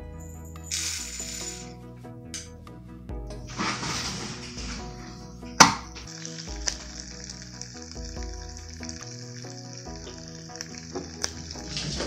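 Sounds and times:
butter and popcorn sizzling: 0:06.1 - 0:12.0.

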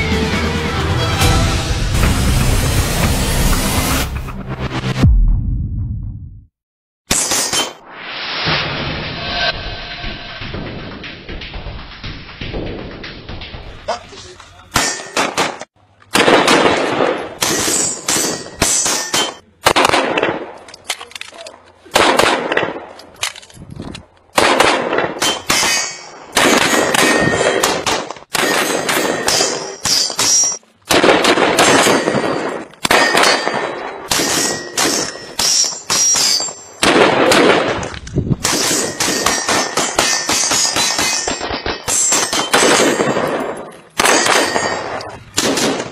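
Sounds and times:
rapid gunshots echoing: 0:14.8 - 0:20.6, 0:24.4 - 0:25.7, 0:30.9 - 0:35.2, 0:36.2 - 0:37.8, 0:38.4 - 0:45.9.

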